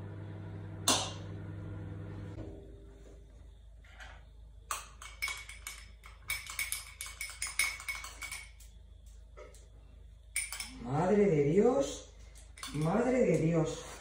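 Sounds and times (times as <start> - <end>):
teaspoon clinking against glass: 4.7 - 8.7, 10.4 - 10.9, 12.5 - 13.1.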